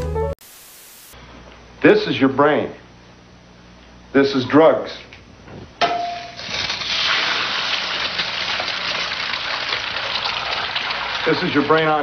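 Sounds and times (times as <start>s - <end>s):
egg sizzling in fat: 0.0s - 1.2s, 6.4s - 11.7s.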